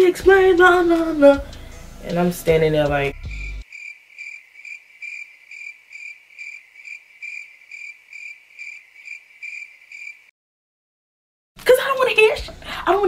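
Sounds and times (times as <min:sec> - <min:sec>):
cricket chirping: 0:03.3 - 0:10.3.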